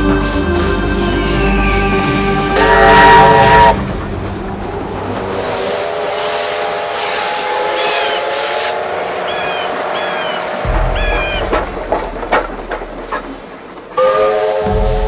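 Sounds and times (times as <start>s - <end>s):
steam locomotive whistle: 0.2s - 3.8s, 5.5s - 10.4s, 14.0s - 15.0s.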